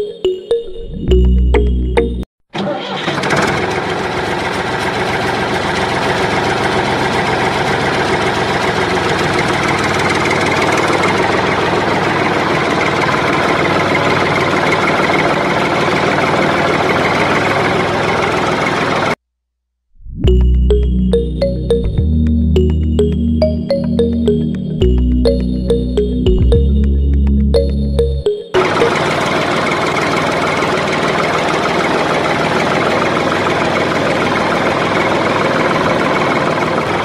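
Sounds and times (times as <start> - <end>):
engine running: 2.8 - 19.2, 20.3 - 37.0.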